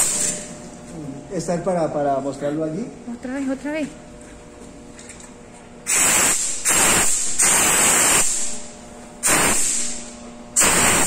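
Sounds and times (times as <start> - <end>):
steam hissing blasts: 5.9 - 8.5, 9.2 - 10.0, 10.6 - 11.0.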